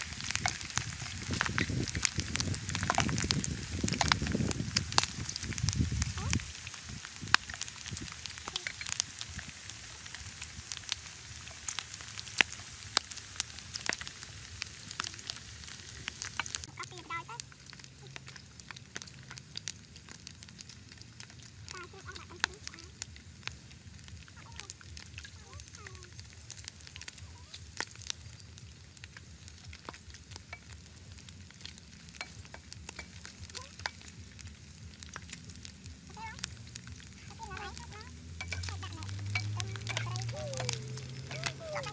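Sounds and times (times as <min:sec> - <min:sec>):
spatula stirring in pan: 0:00.0 - 0:05.7, 0:29.1 - 0:41.9
fat crackling and popping: 0:00.0 - 0:41.9
pork sizzling in oil: 0:00.0 - 0:41.9.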